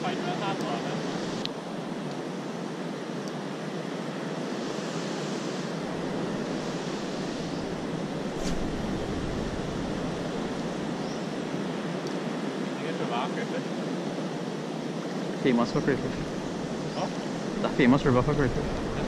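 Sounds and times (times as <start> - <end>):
surf washing: 4.0 - 19.0
wind buffeting microphone: 5.7 - 12.0, 15.7 - 19.0.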